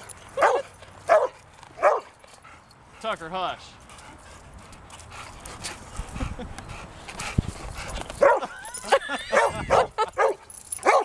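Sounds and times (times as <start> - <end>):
dog whining and yipping: 8.2 - 10.0.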